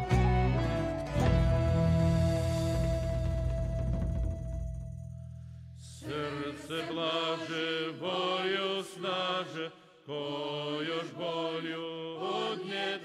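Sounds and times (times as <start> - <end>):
vocal ensemble singing: 5.8 - 13.0.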